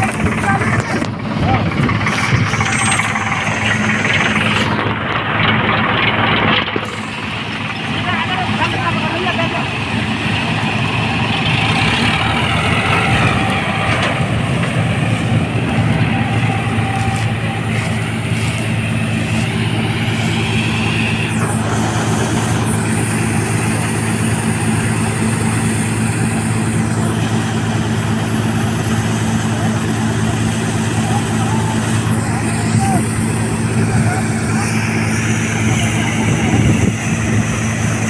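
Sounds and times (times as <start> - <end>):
diesel engine drone: 0.0 - 38.0
thin high whine: 2.1 - 5.0, 15.4 - 27.6.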